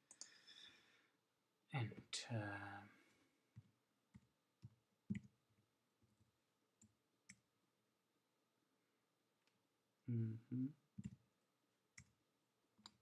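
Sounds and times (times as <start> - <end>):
keystrokes on computer keyboard: 3.6 - 5.4.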